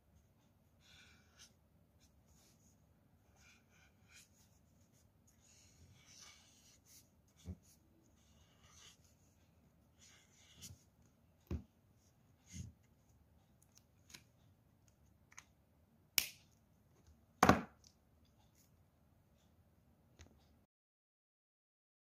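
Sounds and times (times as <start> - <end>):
marker scratching on paper: 0.7 - 10.9.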